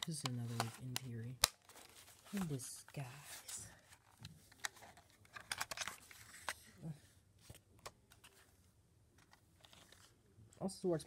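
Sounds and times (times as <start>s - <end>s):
paper leaflet rustling: 0.0s - 6.6s, 9.2s - 10.2s.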